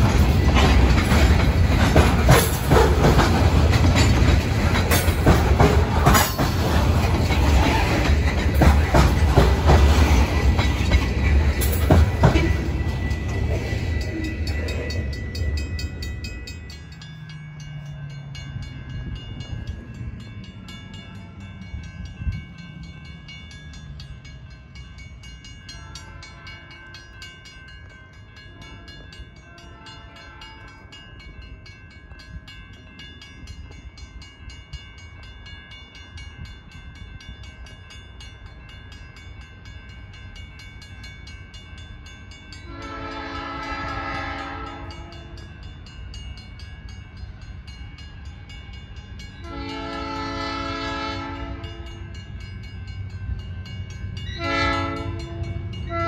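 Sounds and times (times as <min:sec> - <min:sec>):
distant locomotive horn: 0:42.6 - 0:45.4, 0:49.4 - 0:52.1, 0:54.3 - 0:56.0.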